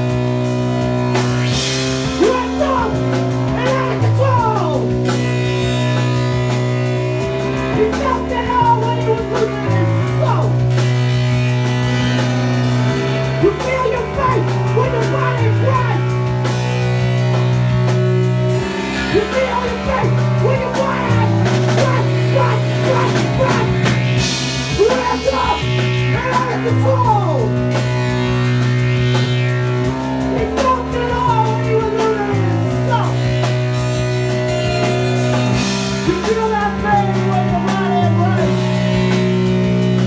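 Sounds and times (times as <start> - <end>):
bass guitar: 0.0 - 40.0
drum kit with cymbal crashes: 0.0 - 40.0
guitar: 0.0 - 40.0
keyboards: 0.0 - 40.0
person singing: 19.1 - 24.1.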